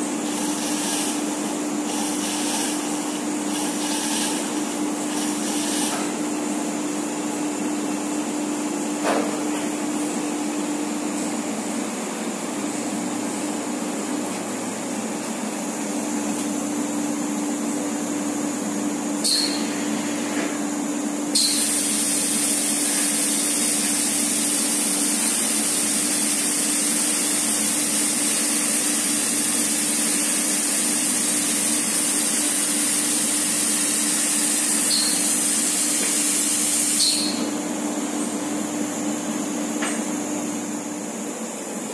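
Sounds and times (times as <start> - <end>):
loud air hiss: 21.3 - 37.5.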